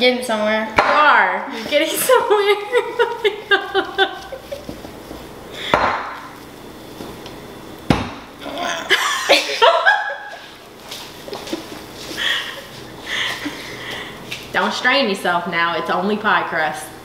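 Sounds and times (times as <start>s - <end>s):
laughter: 2.4s - 4.8s, 8.9s - 10.5s, 11.3s - 13.8s.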